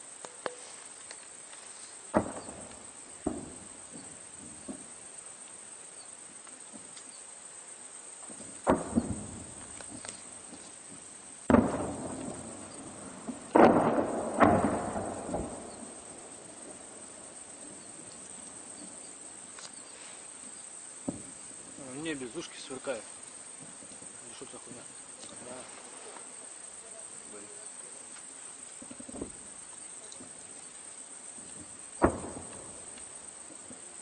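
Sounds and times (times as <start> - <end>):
distant artillery booms: 2.1 - 5.0, 8.3 - 19.2, 31.3 - 34.0.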